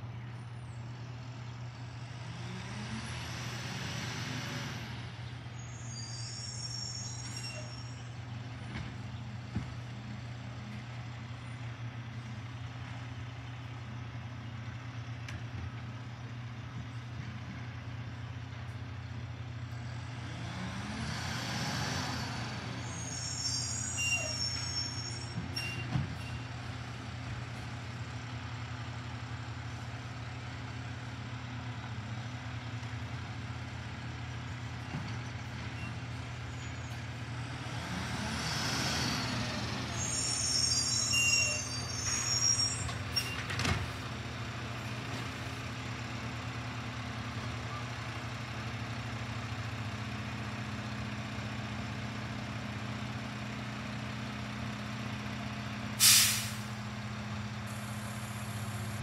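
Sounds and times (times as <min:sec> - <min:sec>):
garbage truck engine hum: 0:00.0 - 0:59.0
high-pitched brake squeals: 0:05.6 - 0:08.2, 0:22.8 - 0:26.5, 0:35.7 - 0:37.0, 0:39.1 - 0:43.6
air hiss: 0:56.0 - 0:56.7.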